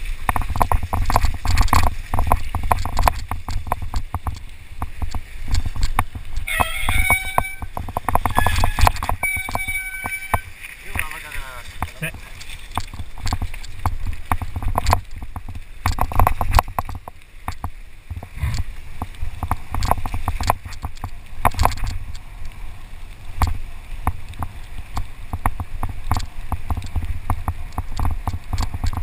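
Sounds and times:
bike rattling over bumps: 0.0 - 22.2
wind rumble on microphone: 0.0 - 29.0.

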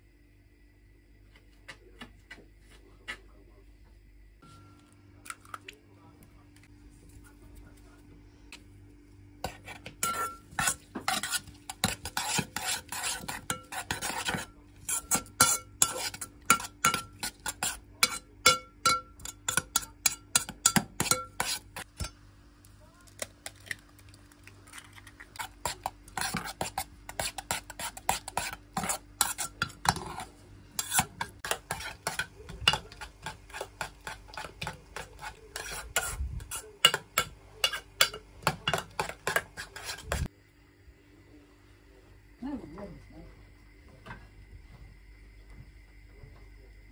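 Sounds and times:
spoon clinking against bowl: 10.0 - 22.2, 36.8 - 39.9.

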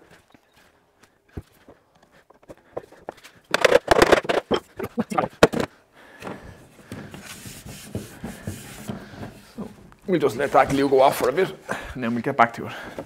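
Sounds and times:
wooden frame scraping and rubbing: 6.8 - 11.5.

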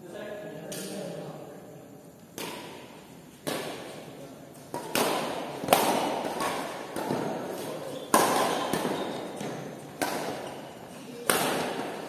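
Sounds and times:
racket smacking shuttlecock with echo: 2.4 - 12.0.

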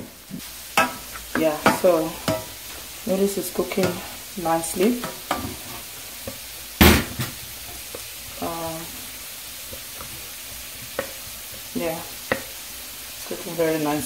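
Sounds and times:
vegetables sizzling in a pan: 0.0 - 14.0
spatula tapping a pot: 0.8 - 2.6, 10.9 - 11.2, 12.2 - 12.6.

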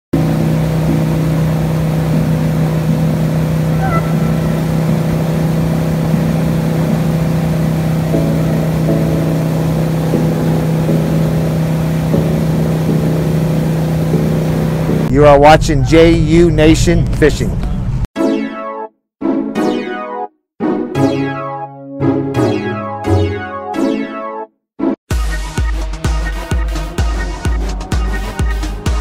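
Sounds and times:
boat engine drone: 0.1 - 18.1, 25.2 - 29.0
water rushing: 0.2 - 15.1.

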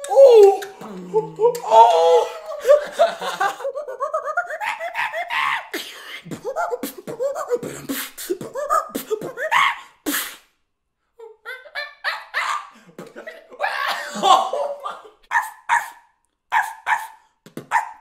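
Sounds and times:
vocal monkey imitation chattering: 3.8 - 10.2, 11.5 - 13.4, 14.8 - 18.0.

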